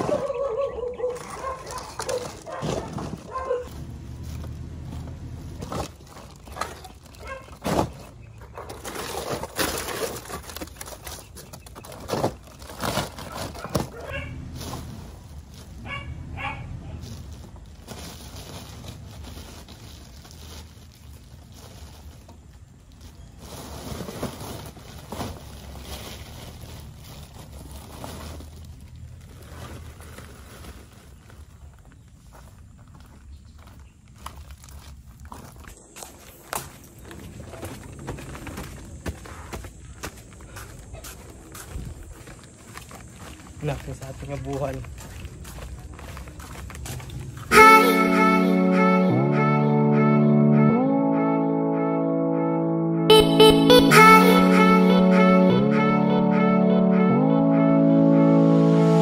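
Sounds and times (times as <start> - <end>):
plastic sacks rustling: 5.5 - 15.8, 17.0 - 31.9.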